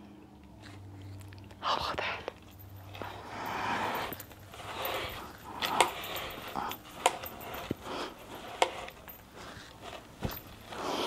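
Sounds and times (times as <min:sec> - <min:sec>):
fabric rustling: 0:02.5 - 0:11.0.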